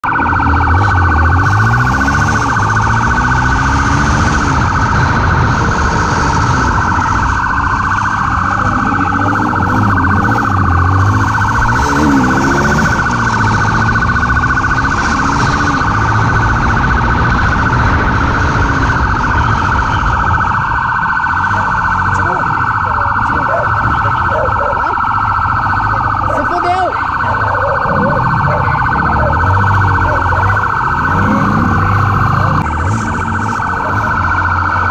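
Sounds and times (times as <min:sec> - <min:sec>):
motorcycle engine revving: 0:00.0 - 0:34.9
warbling police siren: 0:00.0 - 0:34.9.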